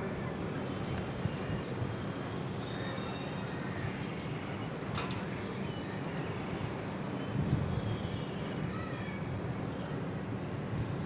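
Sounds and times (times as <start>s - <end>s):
city background hum: 0.0s - 11.0s.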